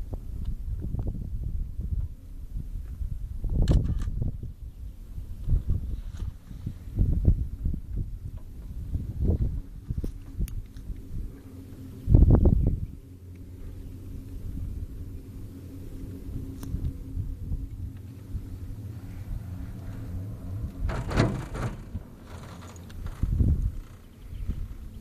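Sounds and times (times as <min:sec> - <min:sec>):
faint hum: 0:00.0 - 0:25.0
vehicle rumbling in motion: 0:00.0 - 0:25.0
rush of noise: 0:11.1 - 0:25.0.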